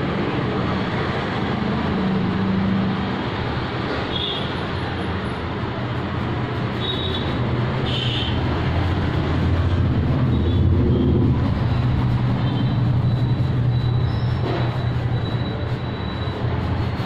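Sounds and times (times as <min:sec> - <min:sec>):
brief high-pitched squeaks: 0:12.4 - 0:16.6.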